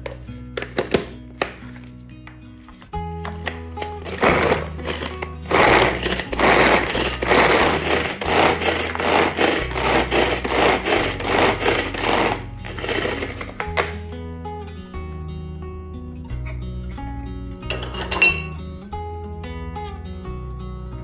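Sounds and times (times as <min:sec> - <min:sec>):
manual food chopper blades whirring: 0:03.8 - 0:14.0.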